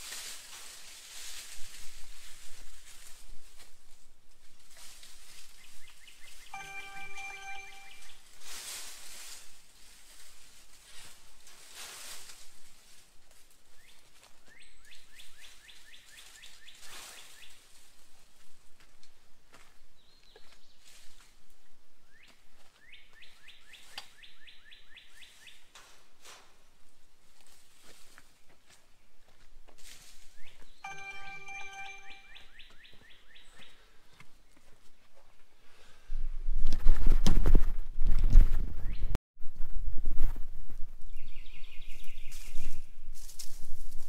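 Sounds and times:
brush swishing against wire panels: 0:00.0 - 0:03.2, 0:08.3 - 0:13.1.

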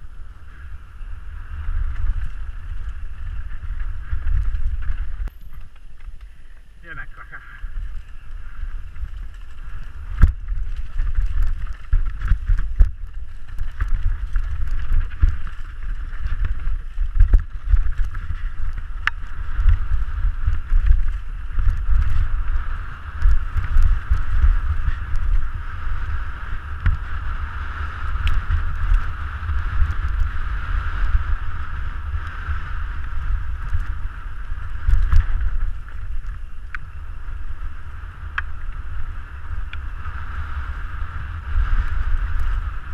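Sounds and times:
bike knocking and rattling: 0:00.0 - 0:06.9, 0:07.7 - 0:42.9
tyre noise on dirt: 0:00.0 - 0:42.9
wind rumble on microphone: 0:00.0 - 0:42.9.

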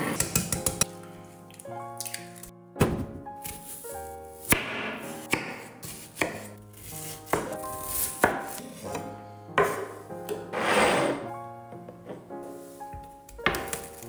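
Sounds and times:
background music: 0:00.0 - 0:14.0
knife chopping on cutting board: 0:04.4 - 0:10.4.

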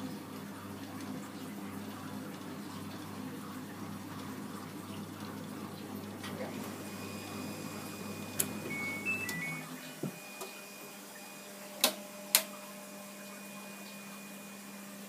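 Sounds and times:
dryer low hum: 0:00.0 - 0:15.0
short electronic beeps: 0:08.7 - 0:09.6.

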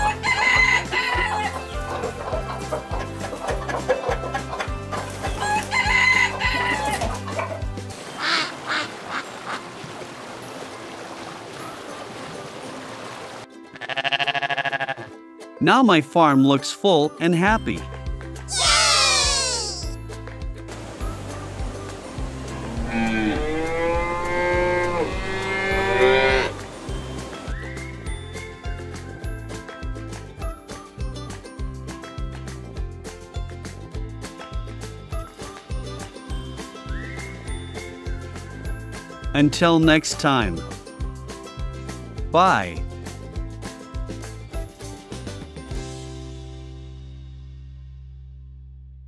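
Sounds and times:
rooster crowing: 0:00.0 - 0:01.6, 0:05.4 - 0:07.0
background music with steady beat: 0:00.0 - 0:08.4, 0:17.2 - 0:47.5
hens clucking: 0:00.0 - 0:09.6
cow mooing: 0:22.6 - 0:26.6.

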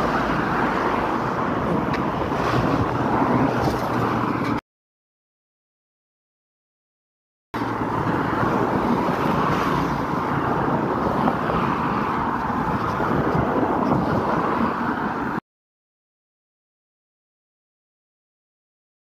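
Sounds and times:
rushing street noise: 0:00.0 - 0:04.6, 0:07.6 - 0:15.4.

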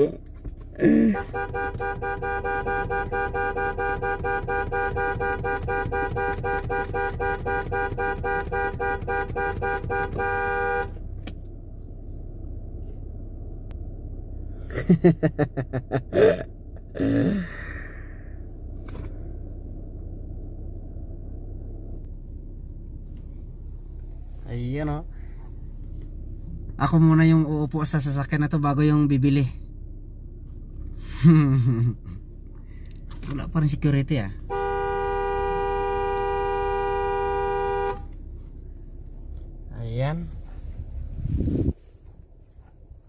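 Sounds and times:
car horn pulsing: 0:00.7 - 0:11.2, 0:34.4 - 0:38.2.

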